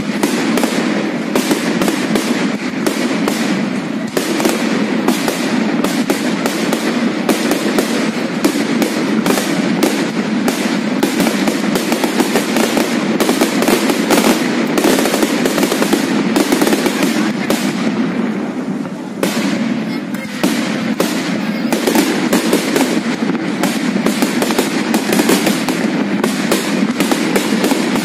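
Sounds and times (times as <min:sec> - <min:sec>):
fireworks bangs: 0:00.0 - 0:28.0.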